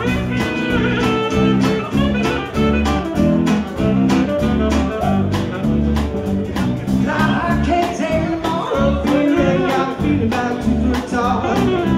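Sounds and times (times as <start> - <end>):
saxophone lead: 0.0 - 7.6, 8.7 - 11.9
acoustic guitar: 0.0 - 11.9
drums: 0.0 - 11.9
electric bass: 0.0 - 11.9.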